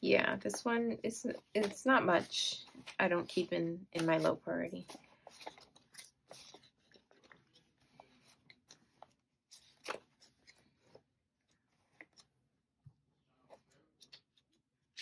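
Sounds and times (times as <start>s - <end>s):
paper rustling and crinkling: 2.5s - 12.3s.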